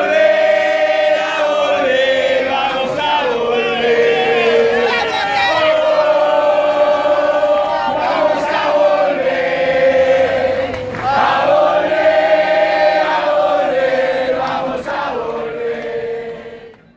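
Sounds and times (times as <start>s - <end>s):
group singing a chant: 0.0s - 16.9s.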